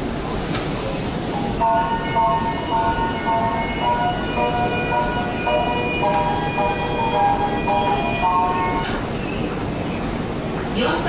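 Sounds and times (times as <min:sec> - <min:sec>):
low rumble of trains: 0:00.0 - 0:11.0
electronic platform melody chime: 0:01.6 - 0:08.9.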